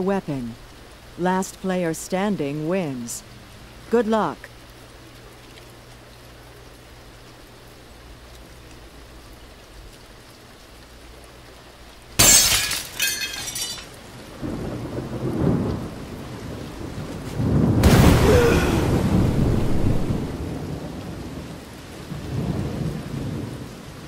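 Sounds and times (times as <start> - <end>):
rain hissing: 0.0 - 24.0
thunderclap rolling into rumble: 14.4 - 23.8.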